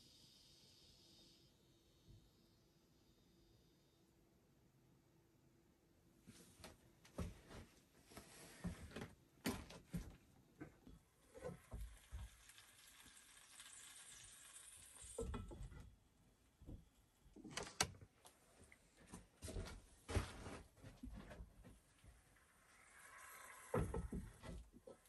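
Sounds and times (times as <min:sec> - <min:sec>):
soft hiss of steam: 0:00.0 - 0:02.6.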